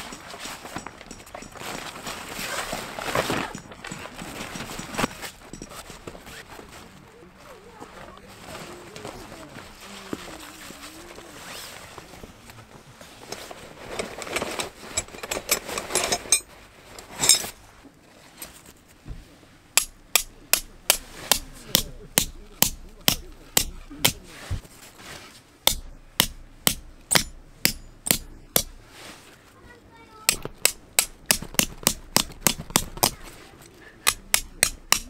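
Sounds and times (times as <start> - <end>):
rustling: 0.0 - 35.0
hammer knocking tent peg: 19.8 - 24.3, 25.6 - 28.8, 30.3 - 33.3, 34.0 - 35.0.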